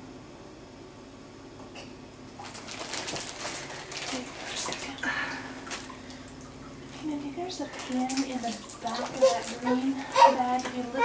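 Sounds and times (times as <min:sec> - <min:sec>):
water sloshing and splashing: 0:02.4 - 0:11.0.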